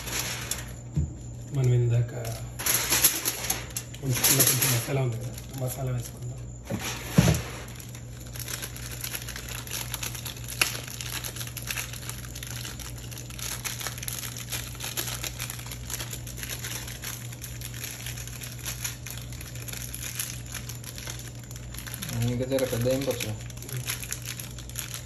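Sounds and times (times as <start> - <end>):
foil tray crinkling: 0.0 - 25.0.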